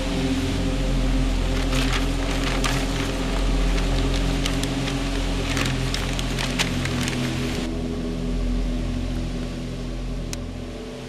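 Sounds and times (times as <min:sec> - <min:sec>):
low background music: 0:00.0 - 0:11.0
paper map crackling and rustling: 0:01.4 - 0:07.7.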